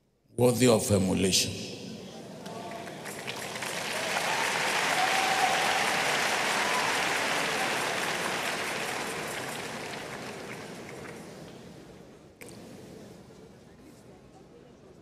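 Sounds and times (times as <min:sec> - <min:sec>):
crowd applauding: 0:02.4 - 0:11.6.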